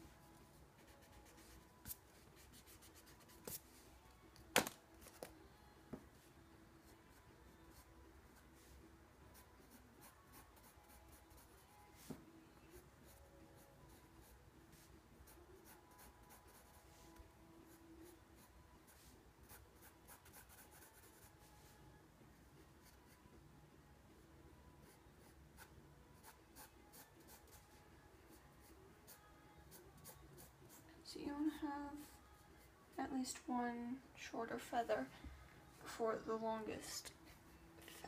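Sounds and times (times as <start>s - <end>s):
pencil scratching on paper: 0.8s - 3.6s, 9.3s - 11.6s, 12.7s - 17.0s, 17.7s - 21.3s, 24.8s - 27.8s.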